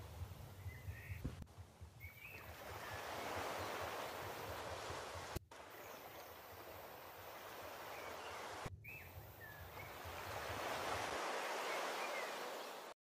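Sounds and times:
surf washing on beach: 0:02.3 - 0:08.7, 0:09.4 - 0:13.0.

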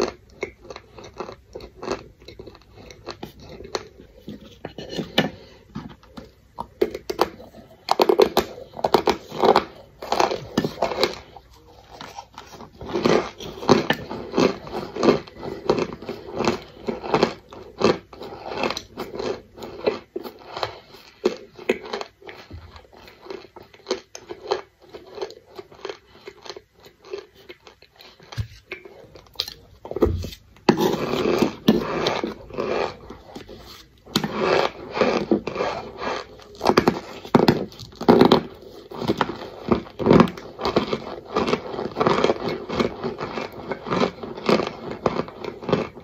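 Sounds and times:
chewing crisp crunches: 0:00.0 - 0:04.3, 0:06.1 - 0:29.9.

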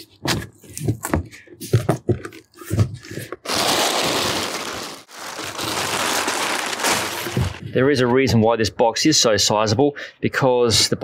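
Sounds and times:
plastic sheet crinkling: 0:03.1 - 0:07.6
rustles and knocks in cardboard box: 0:05.8 - 0:07.7.

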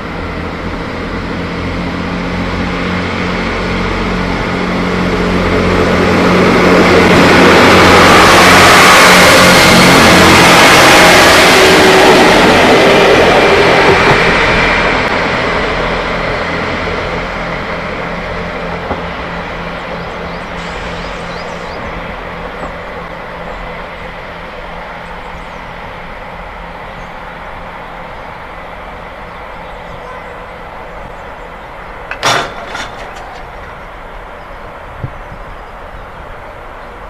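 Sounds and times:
diesel train engines running: 0:00.0 - 0:37.0
brief clatter: 0:32.1 - 0:33.8.

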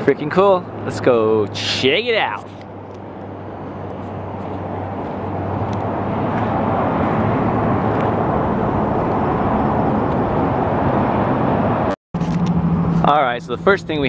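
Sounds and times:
freeway traffic rushing: 0:00.0 - 0:14.0.

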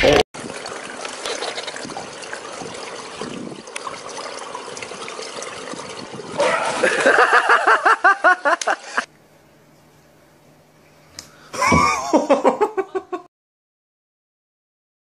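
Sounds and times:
pool water splashing: 0:00.0 - 0:09.1
person laughing: 0:06.4 - 0:09.1, 0:11.6 - 0:13.3.

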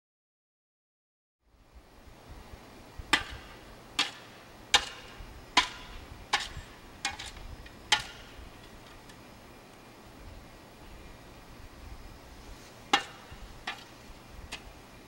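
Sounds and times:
shovel striking dirt: 0:03.1 - 0:08.8, 0:12.9 - 0:14.7.

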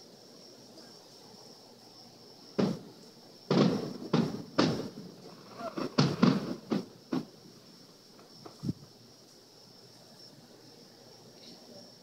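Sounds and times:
firework shells bursting: 0:02.5 - 0:07.5.

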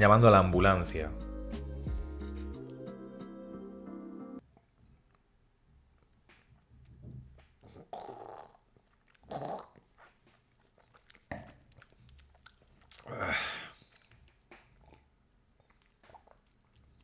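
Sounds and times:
lip-smacking: 0:07.4 - 0:17.0.

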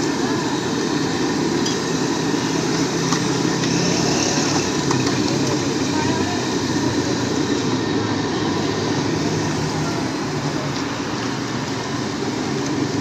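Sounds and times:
busy food stall din: 0:00.0 - 0:13.0.

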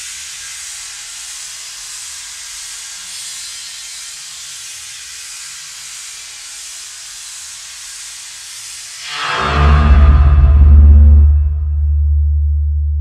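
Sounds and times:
synthesized white noise hiss: 0:00.0 - 0:11.5
faint low pulses: 0:09.3 - 0:13.0.

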